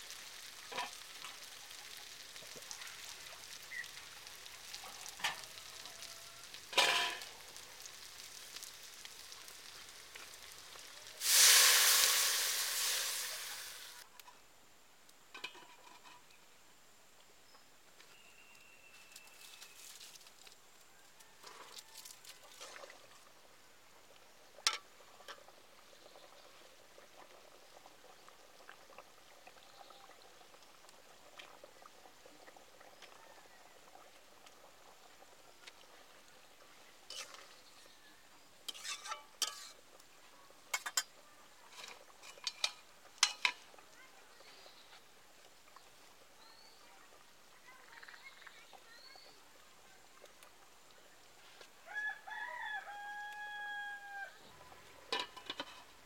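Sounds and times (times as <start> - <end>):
curry bubbling in a wok: 0.0 - 14.1, 22.4 - 51.4
rooster crowing: 51.8 - 54.4.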